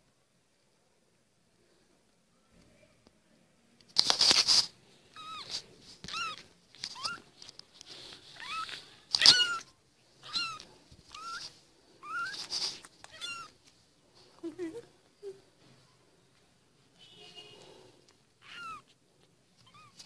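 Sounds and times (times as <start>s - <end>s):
kitten mewing: 8.4s - 13.6s.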